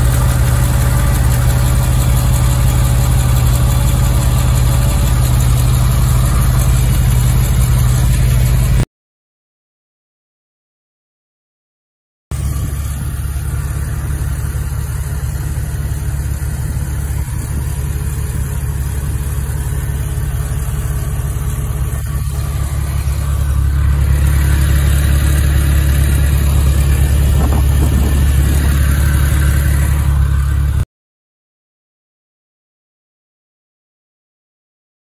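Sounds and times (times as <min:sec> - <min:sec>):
car engine idling: 0:00.0 - 0:08.8, 0:12.3 - 0:30.8
engine ticking: 0:00.0 - 0:08.8, 0:12.3 - 0:30.8.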